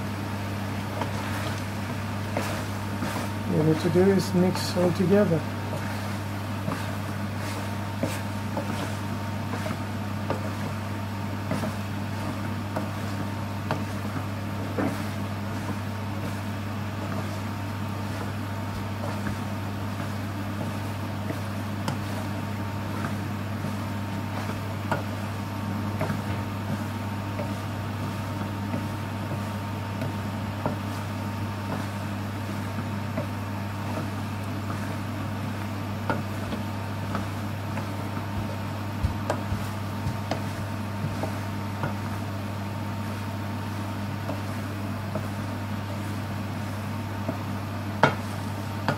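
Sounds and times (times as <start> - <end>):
steady low hum: 0.0 - 48.9
wooden spoon scraping a pan: 1.0 - 5.0, 5.6 - 10.8, 11.4 - 25.3, 36.1 - 48.9.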